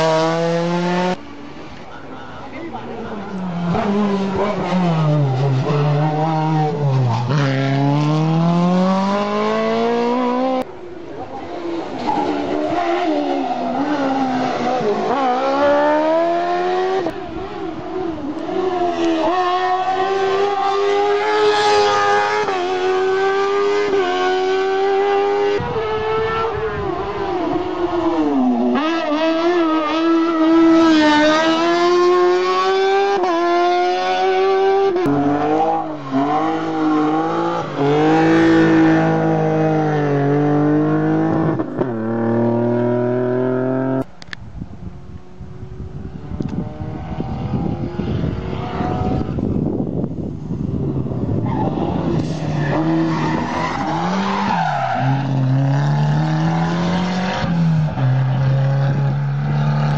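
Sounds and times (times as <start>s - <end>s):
race car engines revving: 0.0s - 59.9s.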